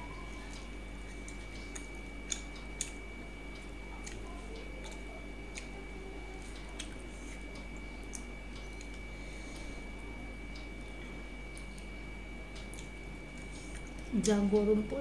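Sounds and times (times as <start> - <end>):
quiet chewing: 0.0 - 14.7.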